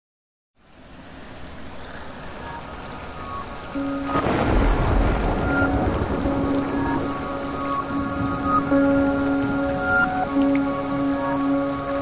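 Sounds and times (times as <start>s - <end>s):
rain falling on water: 0.6s - 12.0s
low thunder rumble: 4.1s - 9.8s.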